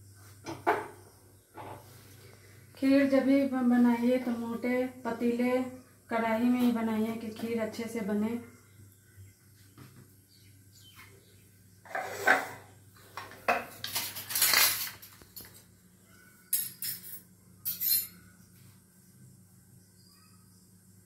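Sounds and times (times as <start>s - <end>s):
bowls and utensils clinking: 11.9s - 15.6s, 16.5s - 18.2s.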